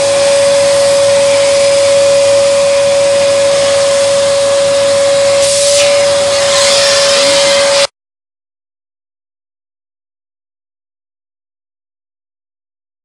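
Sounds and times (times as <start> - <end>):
vacuum cleaner running: 0.0 - 7.9.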